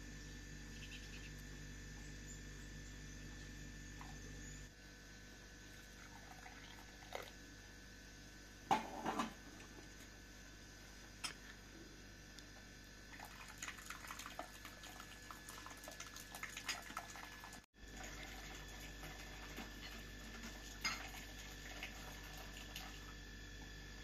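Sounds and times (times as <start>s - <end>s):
faint steady hum: 0.0s - 24.0s.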